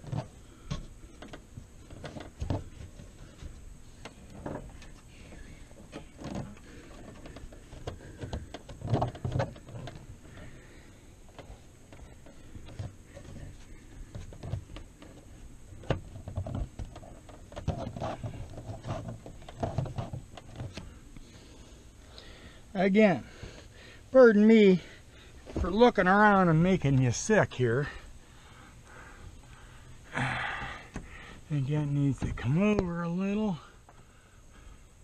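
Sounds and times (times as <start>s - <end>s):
canvas rustling and rubbing: 11.5s - 20.8s.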